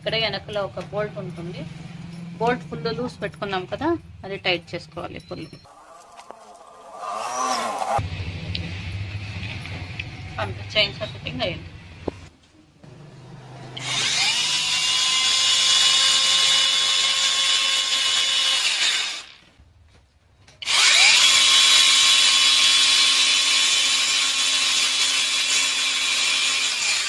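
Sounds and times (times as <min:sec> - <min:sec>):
chainsaw whine: 0:05.7 - 0:08.0, 0:12.9 - 0:17.5, 0:20.6 - 0:22.0.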